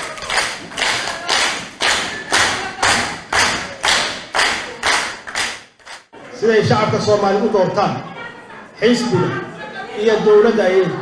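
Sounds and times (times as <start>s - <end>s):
crowd clapping in unison: 0.0s - 6.1s.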